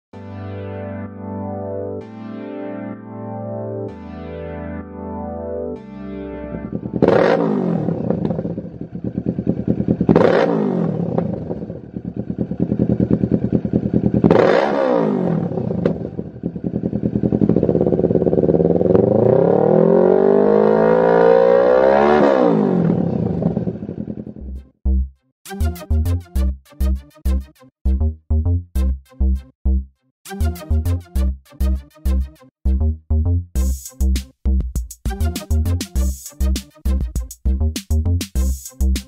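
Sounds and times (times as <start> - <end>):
motorcycle engine revving: 6.7 - 24.6.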